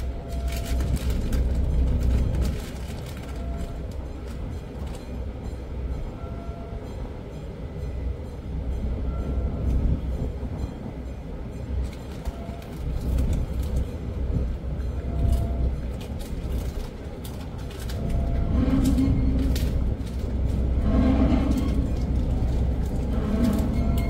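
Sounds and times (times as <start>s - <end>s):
low rumble on ship deck: 0.0s - 24.0s.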